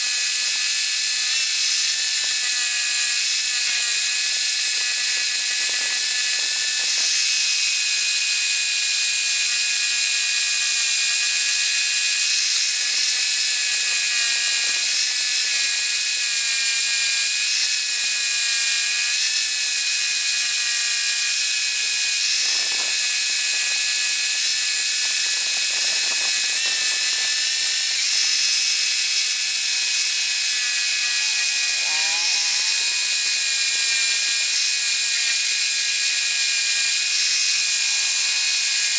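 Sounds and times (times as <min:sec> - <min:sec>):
scroll saw cutting wood: 0:11.8 - 0:38.2.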